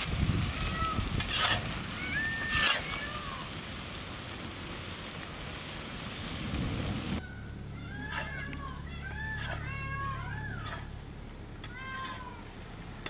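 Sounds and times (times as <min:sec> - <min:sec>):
food sizzling on hot pan: 0:00.0 - 0:07.3.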